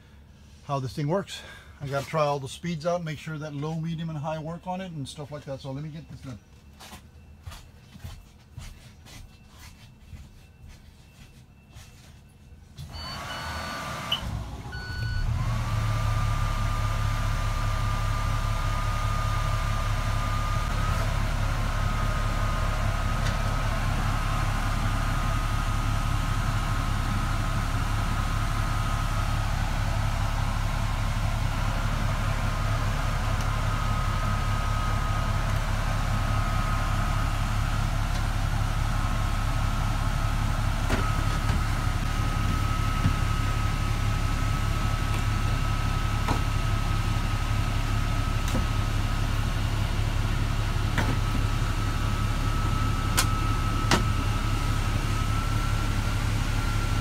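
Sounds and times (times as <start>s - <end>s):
diesel engine starting and idling: 12.7s - 57.0s.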